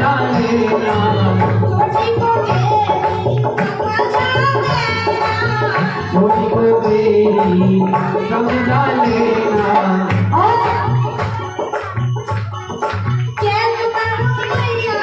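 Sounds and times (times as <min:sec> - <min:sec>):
woman singing: 0:00.0 - 0:06.3, 0:10.2 - 0:11.8, 0:13.4 - 0:15.0
hand drums: 0:00.0 - 0:15.0
keyboard: 0:00.0 - 0:15.0.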